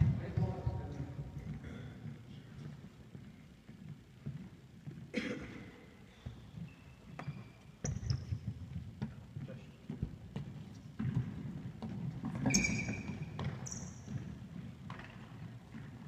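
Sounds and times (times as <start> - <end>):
football thuds on hall floor: 7.8 - 16.0
short high squeak: 12.4 - 14.0.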